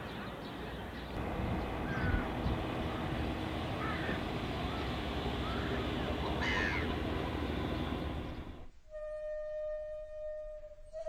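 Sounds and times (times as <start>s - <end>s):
birds calling: 0.0s - 8.7s
boat engine rumble: 0.0s - 10.6s.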